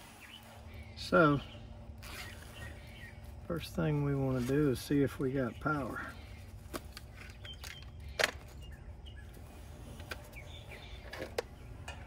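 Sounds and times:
faint bird chirps: 0.0s - 3.4s.

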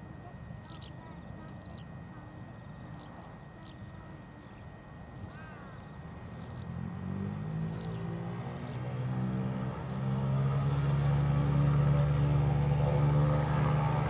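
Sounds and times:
faint birds chirping: 0.0s - 10.0s
low engine hum: 0.0s - 14.0s.

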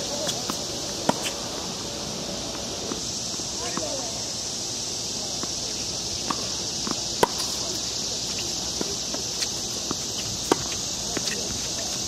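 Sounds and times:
high drone of insects: 0.0s - 12.0s
tennis ball bouncing on hard court: 3.6s - 4.0s, 6.2s - 11.9s
tennis ball struck by rackets: 6.2s - 11.6s.

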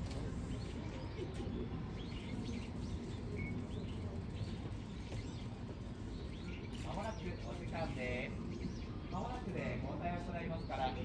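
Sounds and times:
small birds chirping: 0.4s - 9.4s.

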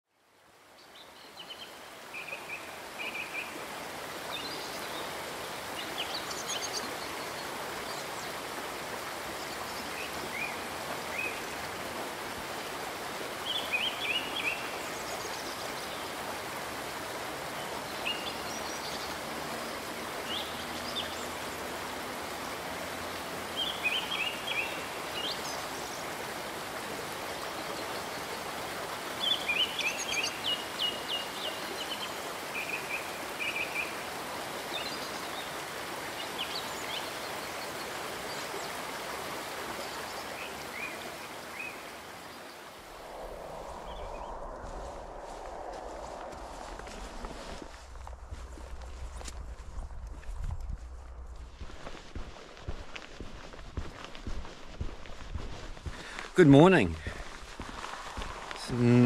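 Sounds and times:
flowing river water: 0.1s - 59.0s
birds chirping: 36.2s - 59.0s.

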